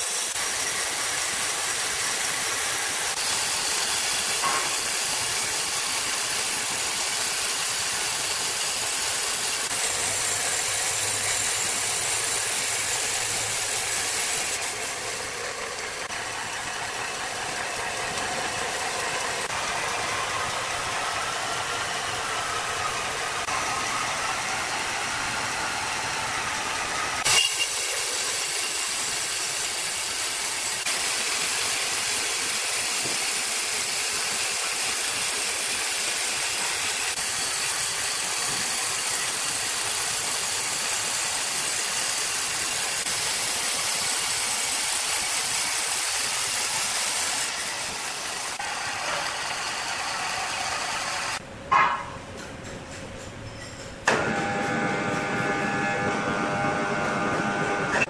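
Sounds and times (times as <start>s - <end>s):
saw blade cutting log: 0.0s - 20.5s, 27.0s - 51.4s
band saw humming: 0.0s - 51.4s, 54.1s - 58.0s.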